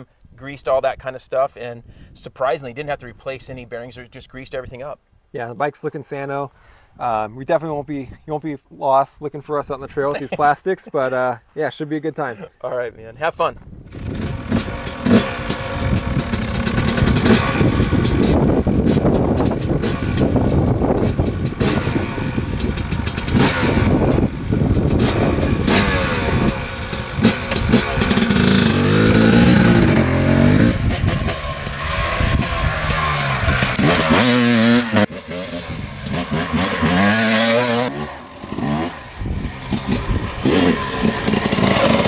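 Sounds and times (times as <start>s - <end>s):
dirt bike engine revving: 13.9s - 42.0s.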